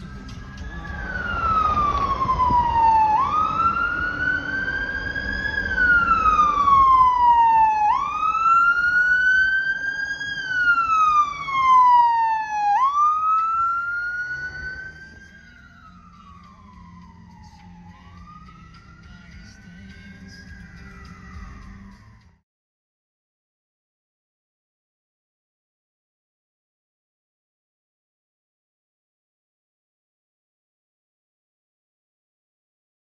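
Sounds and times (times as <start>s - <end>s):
fire truck siren wailing: 0.0s - 22.4s
low truck engine noise: 0.0s - 22.4s.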